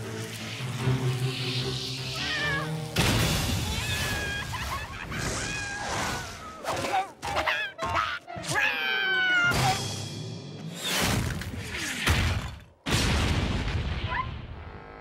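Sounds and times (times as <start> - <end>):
background music: 0.0 - 10.9
cartoon cat yowling and screeching: 2.1 - 2.8, 3.6 - 9.8.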